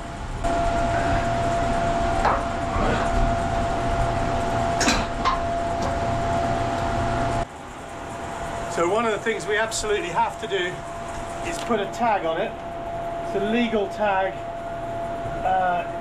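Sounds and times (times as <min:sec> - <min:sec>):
fans humming and whining: 0:00.0 - 0:16.0
sharp metallic clank: 0:04.8 - 0:06.1.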